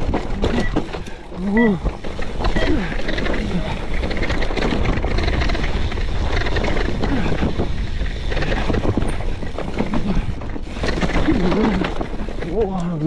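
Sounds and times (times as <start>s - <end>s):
mountain bike rattling and clattering: 0.0s - 13.0s
wind rumble on microphone: 2.4s - 12.6s.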